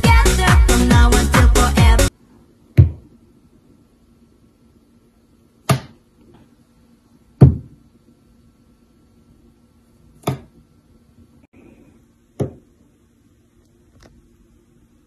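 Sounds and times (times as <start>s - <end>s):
knocks on a hard countertop: 2.8s - 3.0s, 7.4s - 7.8s, 12.4s - 12.6s.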